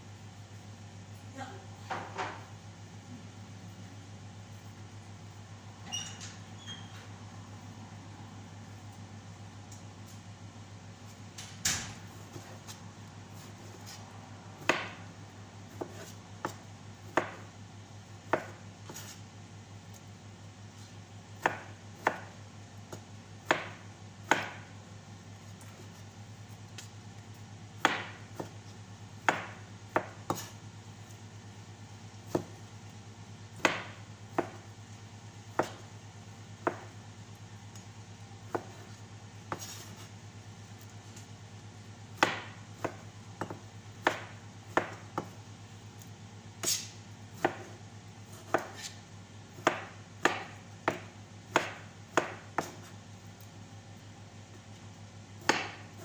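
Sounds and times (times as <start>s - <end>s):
knife chopping on cutting board: 14.6s - 15.1s, 15.7s - 17.5s, 18.3s - 19.2s, 21.4s - 24.7s, 27.8s - 30.6s, 32.3s - 32.6s, 33.6s - 34.7s, 35.5s - 35.8s, 36.6s - 36.9s, 38.5s - 40.1s, 42.2s - 45.4s, 46.6s - 53.0s, 55.4s - 56.0s.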